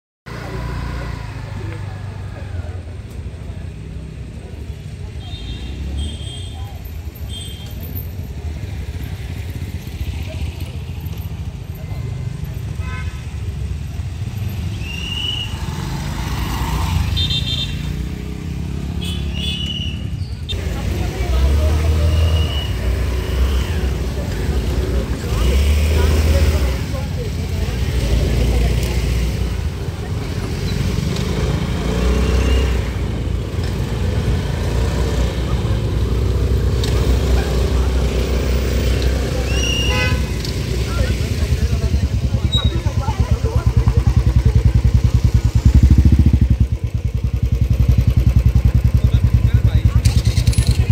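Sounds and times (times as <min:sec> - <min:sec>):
motorcycle engines rumbling: 0:00.3 - 0:50.9
scooters and cars passing: 0:00.3 - 0:50.9
vehicle horn toots: 0:17.1 - 0:17.9, 0:19.0 - 0:20.0, 0:39.6 - 0:40.4.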